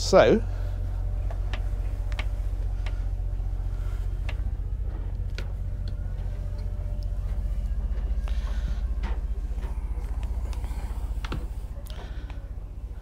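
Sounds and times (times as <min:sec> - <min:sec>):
low pulsing engine rumble: 0:00.0 - 0:13.0
footsteps and handling knocks: 0:04.2 - 0:12.4.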